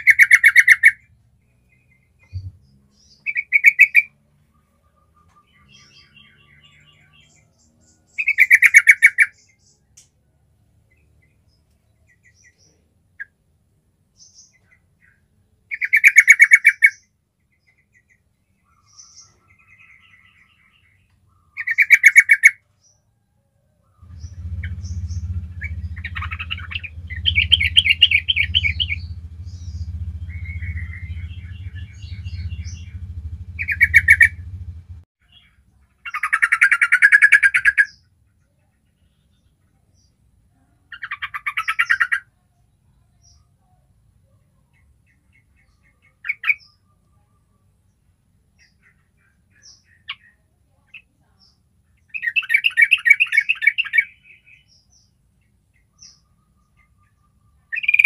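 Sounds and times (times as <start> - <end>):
faint bird chirps: 0.0 - 13.5, 14.1 - 58.0
bird rattling calls: 24.0 - 35.0
low hum: 24.0 - 35.1.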